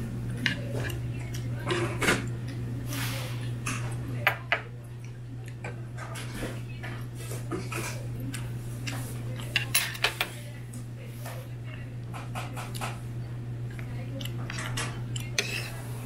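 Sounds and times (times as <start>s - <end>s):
steady low hum: 0.0s - 16.0s
cutlery clinking against dishes: 5.6s - 10.4s, 14.2s - 15.8s.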